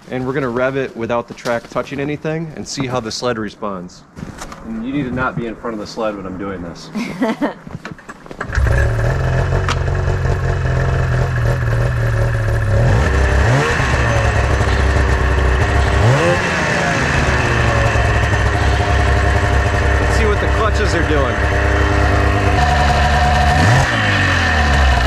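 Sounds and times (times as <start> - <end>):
snowmobile engine revving: 8.4 - 25.0.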